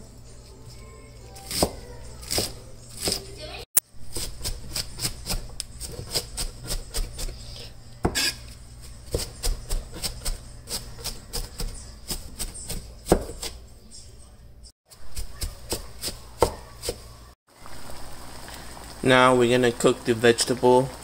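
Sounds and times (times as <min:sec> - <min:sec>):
cleaver chopping cabbage on board: 0:04.1 - 0:07.3, 0:09.0 - 0:13.6, 0:14.9 - 0:17.0.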